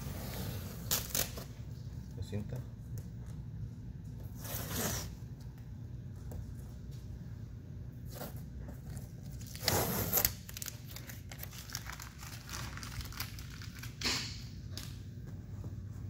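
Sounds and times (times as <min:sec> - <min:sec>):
masking tape ripping off metal: 0:00.8 - 0:01.5, 0:09.4 - 0:14.4.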